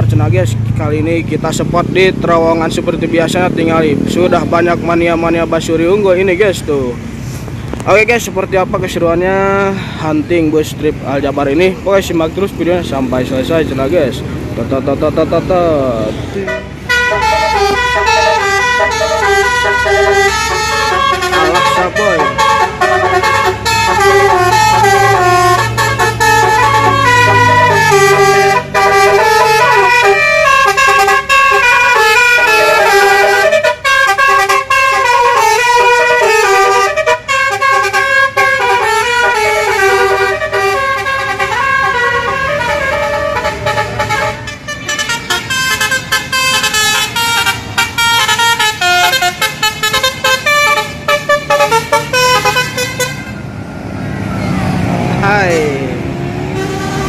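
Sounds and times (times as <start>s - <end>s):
bus engine: 0.0s - 57.0s
bus horns playing a fast tune: 15.8s - 53.5s, 55.4s - 57.0s.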